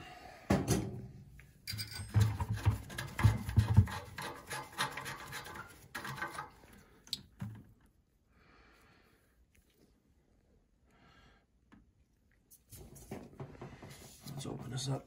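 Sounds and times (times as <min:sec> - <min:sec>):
gloved hands scratching valve: 0:02.2 - 0:06.6.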